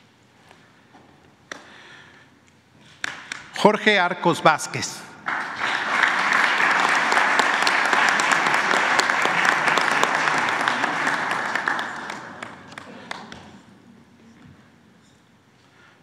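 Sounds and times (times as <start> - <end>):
audience applauding: 5.2 - 13.7.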